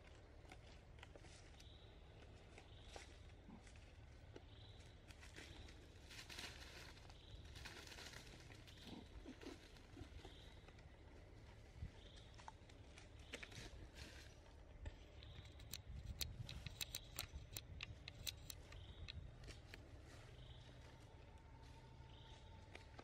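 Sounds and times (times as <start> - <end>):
dry leaves rustling: 5.2 - 9.9.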